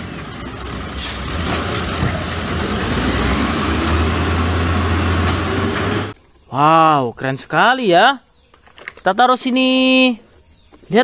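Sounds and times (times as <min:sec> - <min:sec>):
garbage truck diesel engine: 0:00.0 - 0:06.2.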